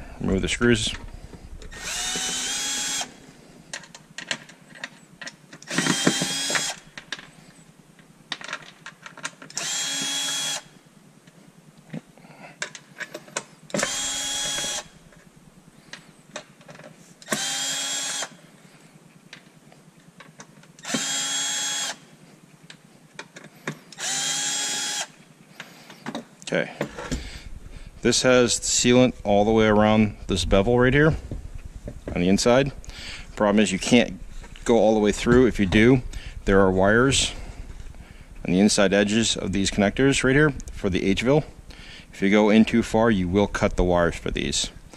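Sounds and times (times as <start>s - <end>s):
cordless drill whining: 1.1s - 3.2s, 5.6s - 7.4s, 9.5s - 10.7s, 13.7s - 15.0s, 17.2s - 18.4s, 20.8s - 22.1s, 23.9s - 25.2s.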